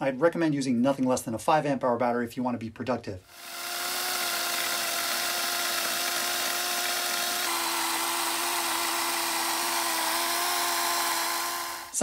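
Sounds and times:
chainsaw motor whine: 0:03.3 - 0:12.0.

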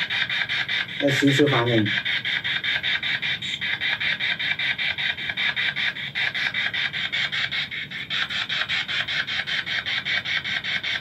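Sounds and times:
choppy radio static: 0:01.0 - 0:02.0.

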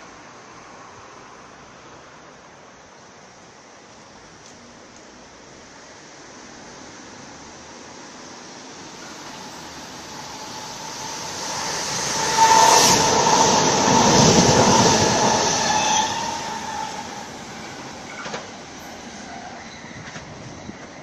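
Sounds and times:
electric train passing: 0:05.2 - 0:21.0.

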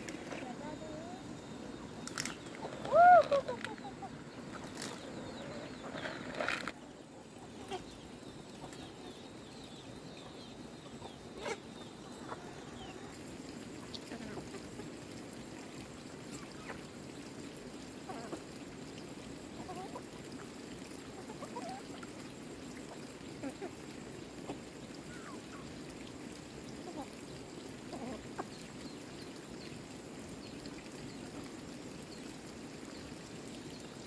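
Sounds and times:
steady background hiss: 0:00.0 - 0:34.0
chickens pecking at corn: 0:02.1 - 0:06.9
chickens clucking: 0:02.2 - 0:09.1, 0:10.2 - 0:13.2, 0:13.8 - 0:15.0, 0:21.1 - 0:22.0.

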